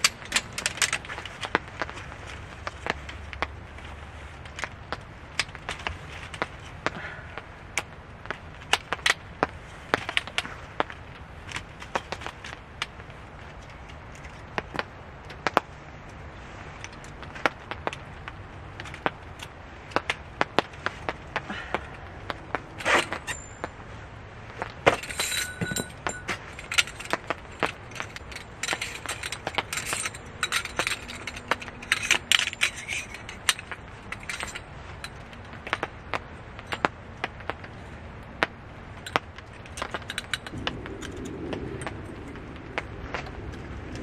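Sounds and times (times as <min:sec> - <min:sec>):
metal rods clicking and rattling: 0:00.0 - 0:02.8, 0:22.3 - 0:23.8, 0:24.6 - 0:36.9, 0:39.0 - 0:42.4.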